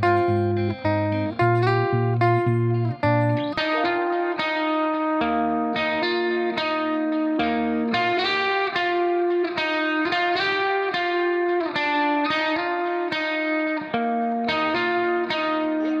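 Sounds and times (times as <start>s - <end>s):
guitar playing ringing chords: 0.0s - 16.0s.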